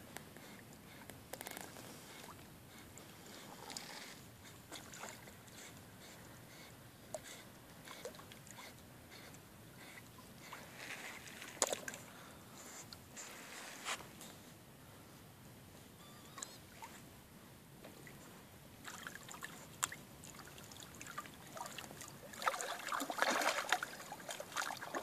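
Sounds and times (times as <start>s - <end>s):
water sloshing and splashing: 4.8s - 5.3s, 10.6s - 12.1s, 18.8s - 25.0s.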